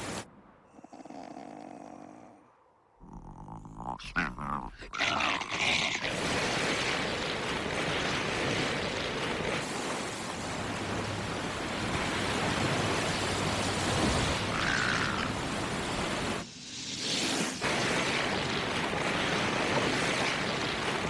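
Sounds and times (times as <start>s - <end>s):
skis sliding over snow: 16.2s - 21.0s.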